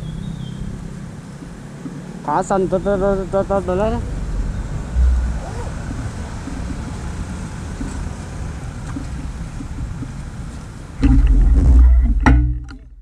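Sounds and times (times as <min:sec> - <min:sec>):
motorcycle engines idling: 0:00.0 - 0:11.0
loud low rumble: 0:03.9 - 0:08.8
wind noise on microphone: 0:04.1 - 0:13.0.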